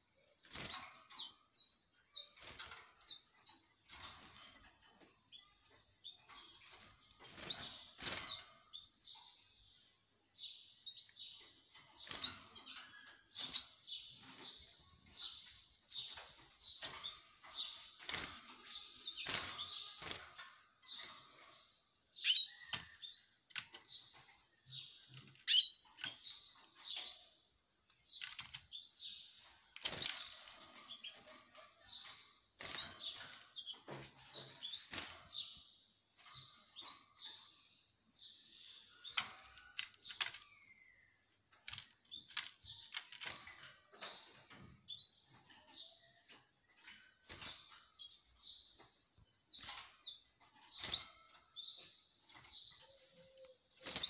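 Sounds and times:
canaries chirping: 0.0s - 54.0s.

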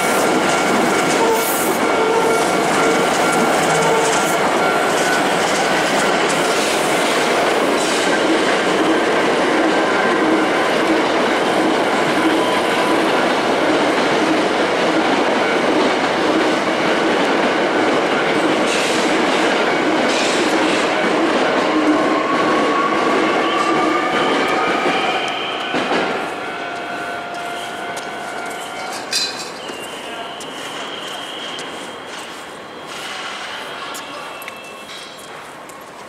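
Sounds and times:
wheels clacking over rail joints: 0.0s - 21.3s
train wheels rumbling on rails: 0.0s - 36.0s.

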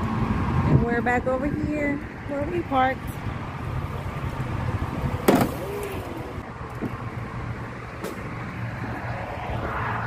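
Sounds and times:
engine low rumble: 0.0s - 10.0s
sharp clunk: 5.2s - 5.6s.

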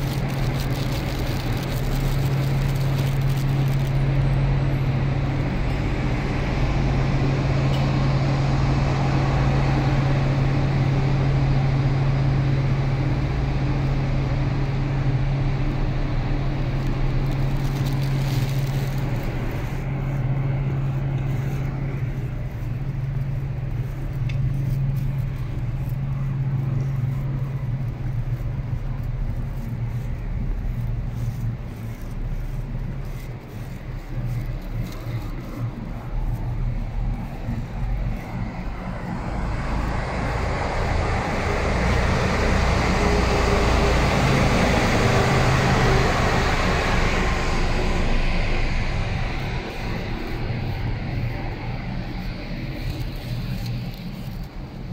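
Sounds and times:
low machine drone: 0.0s - 54.9s.

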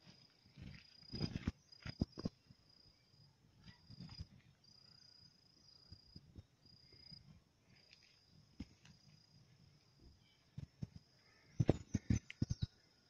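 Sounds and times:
insect trilling: 10.2s - 13.0s.

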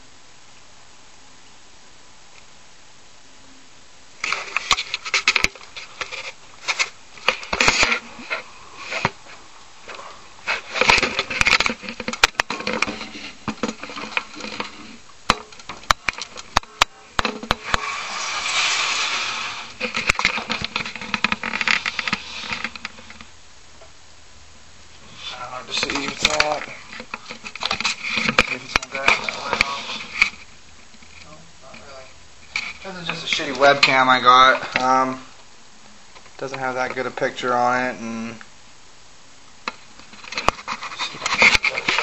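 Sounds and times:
rubbing and scraping handling noise: 4.1s - 23.4s, 24.9s - 35.3s, 39.7s - 42.0s.

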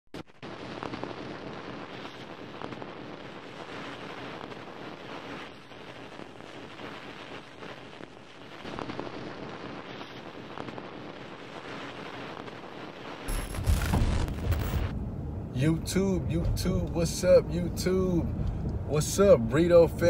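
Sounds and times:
steady rushing hiss: 0.2s - 15.0s.

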